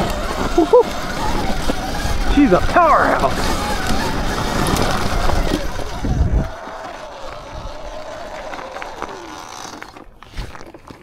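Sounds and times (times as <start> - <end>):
wind buffeting microphone: 0.0 - 9.2
electric motor whine: 0.0 - 10.1.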